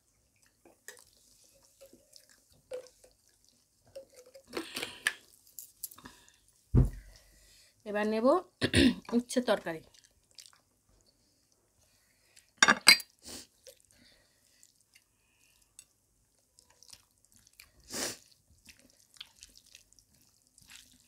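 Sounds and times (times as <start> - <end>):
eating rice and curry by hand: 0.0 - 6.5, 9.8 - 21.0
glass bowl clinking against dishes: 12.6 - 13.1.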